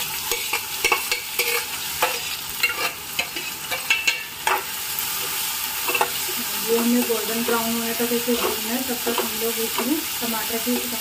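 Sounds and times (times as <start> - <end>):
onions sizzling in oil: 0.0 - 11.0
metal spoon scraping pan: 0.2 - 4.7, 5.3 - 10.0.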